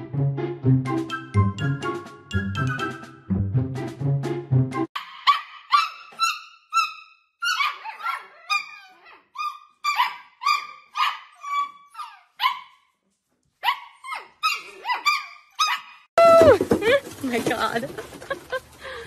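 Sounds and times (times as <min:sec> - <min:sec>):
puppies yipping and barking: 0:05.0 - 0:12.8, 0:13.6 - 0:16.1.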